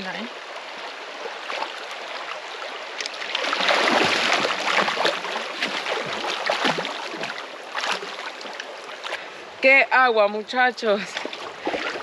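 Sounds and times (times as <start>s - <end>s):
river water rushing: 0.0s - 12.0s
person splashing in water: 3.0s - 9.2s, 11.2s - 12.0s.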